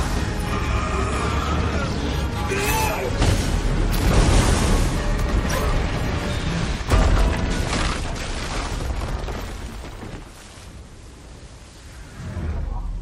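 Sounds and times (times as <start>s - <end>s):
orchestral score: 0.0s - 7.2s.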